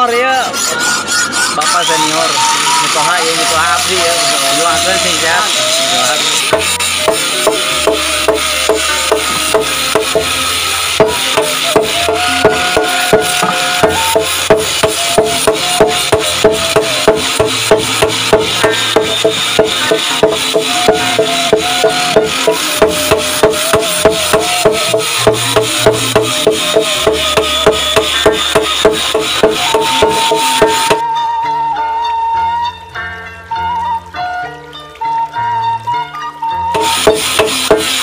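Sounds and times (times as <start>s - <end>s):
hammers striking steel on anvil: 5.7s - 31.0s, 36.8s - 38.0s.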